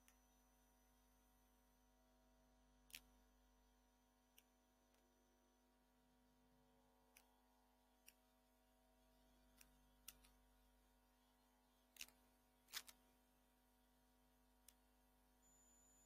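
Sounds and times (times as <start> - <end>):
faint irregular clicks: 0.0 - 0.3, 2.8 - 3.3, 4.2 - 5.2, 7.1 - 8.5, 9.3 - 10.6, 11.9 - 13.3, 14.6 - 15.0
faint steady hum: 0.0 - 16.0.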